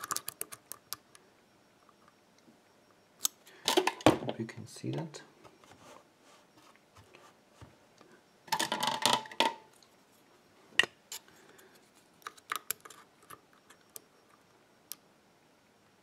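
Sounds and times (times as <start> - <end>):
lock picks clicking in a lock: 0.0 - 0.8.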